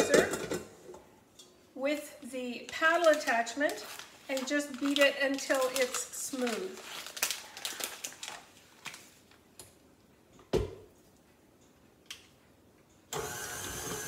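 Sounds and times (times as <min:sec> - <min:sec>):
paper packet rustling: 0:02.6 - 0:09.4
stand mixer motor hum: 0:13.2 - 0:14.0.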